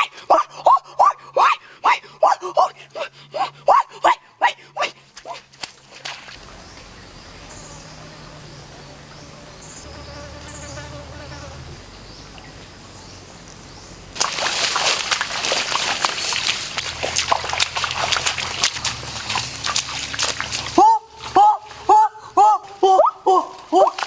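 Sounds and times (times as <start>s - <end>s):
feet splashing through muddy water: 0.0s - 6.9s, 14.1s - 24.0s
insect buzzing: 6.4s - 12.0s.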